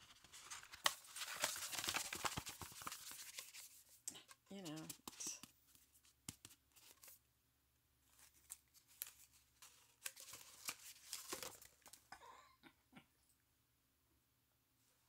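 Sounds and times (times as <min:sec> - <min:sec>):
packaging rustling and crinkling: 0:00.0 - 0:03.8, 0:08.1 - 0:12.1.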